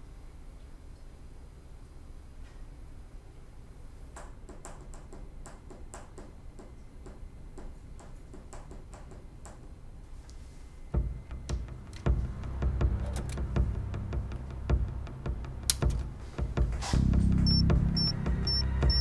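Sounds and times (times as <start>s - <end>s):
faint low hum: 0.0s - 19.0s
deep low thud: 11.0s - 19.0s
sharp ticking: 17.5s - 19.0s.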